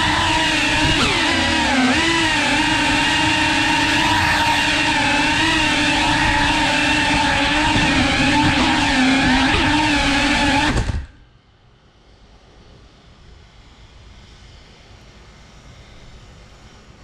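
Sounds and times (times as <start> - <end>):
drone motors whining: 0.0 - 11.2.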